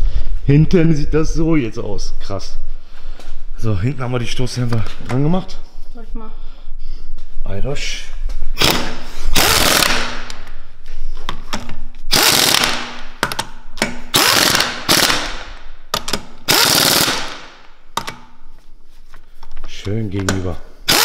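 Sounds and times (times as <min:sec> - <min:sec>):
pneumatic impact wrench hammering: 0:08.6 - 0:10.4, 0:12.1 - 0:18.2.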